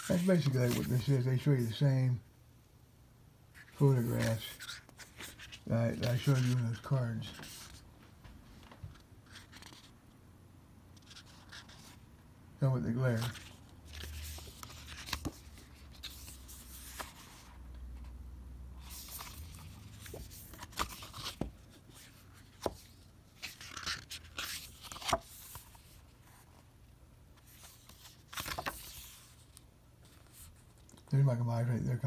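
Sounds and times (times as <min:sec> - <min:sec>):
paper and card rustling: 0:00.0 - 0:01.8, 0:03.6 - 0:07.8, 0:08.6 - 0:09.9, 0:12.9 - 0:17.6, 0:18.8 - 0:26.5, 0:27.4 - 0:31.1.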